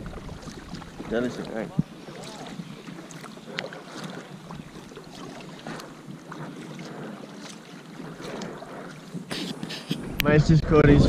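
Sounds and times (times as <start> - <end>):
paddle splashes: 0.0 - 10.2
water lapping against hull: 0.0 - 10.4
wind on microphone: 0.0 - 11.0.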